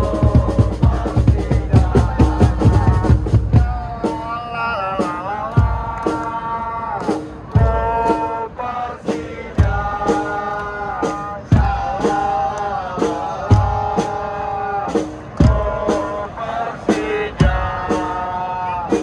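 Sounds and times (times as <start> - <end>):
crowd singing in unison: 0.0 - 19.0
lighter drumbeats: 0.0 - 19.0.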